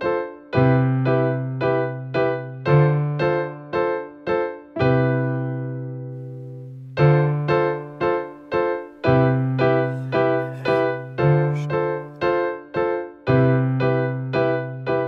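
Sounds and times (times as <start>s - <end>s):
keyboard playing chords: 4.8s - 12.4s.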